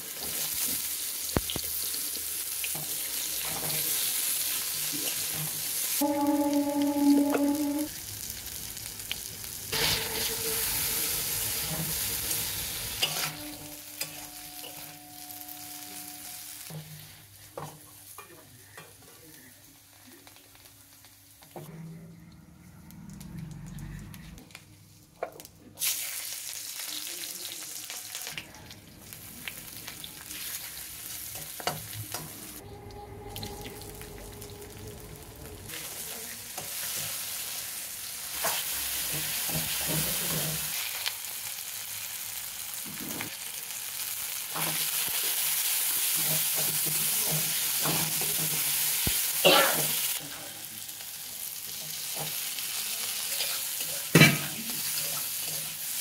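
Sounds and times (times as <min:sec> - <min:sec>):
oil sizzling with frying vegetables: 0:00.0 - 0:21.7, 0:24.9 - 0:32.6, 0:35.7 - 0:56.0
spatula scraping a pan: 0:09.7 - 0:17.1.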